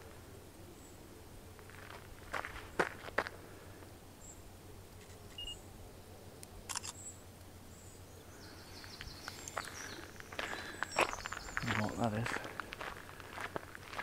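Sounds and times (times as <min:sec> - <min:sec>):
sharp clicks: 0:06.4 - 0:07.0
high bird chirps: 0:08.4 - 0:11.9.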